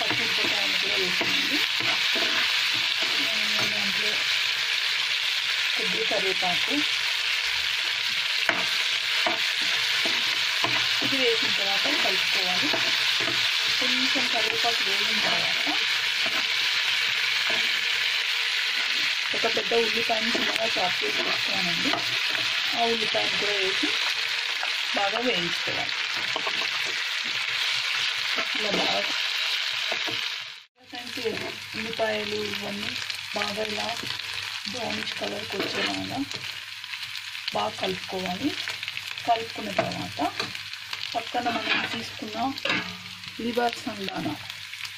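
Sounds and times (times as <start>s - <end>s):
spatula scraping pan: 0.0s - 4.4s, 8.0s - 24.8s, 25.8s - 29.2s, 34.9s - 36.5s, 41.2s - 43.2s
food sizzling in oil: 0.0s - 44.9s.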